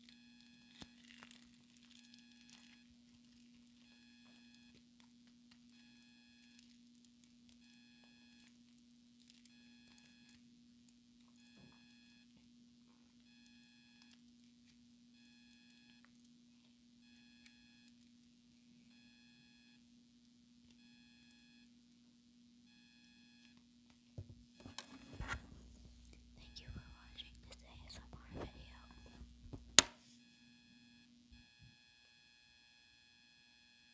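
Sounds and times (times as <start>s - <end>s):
faint steady hum: 0.0s - 33.9s
soft slime handling noise: 0.6s - 5.7s, 24.2s - 30.0s
faint electronic beeps: 26.4s - 29.4s.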